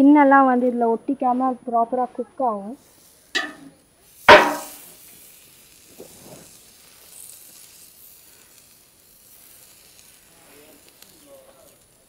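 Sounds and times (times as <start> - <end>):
oil sizzling on grill: 2.4 - 12.0.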